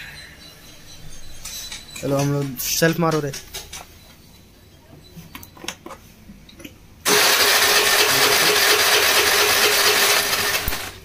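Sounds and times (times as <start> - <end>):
scooter starter motor cranking: 7.1 - 11.0.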